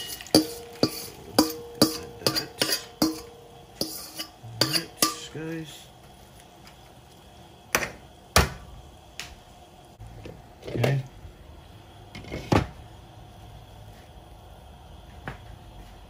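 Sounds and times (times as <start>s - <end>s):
glass lid clanking on pan: 0.0s - 5.3s
metal spoon knocking on steel pan: 0.4s - 5.3s.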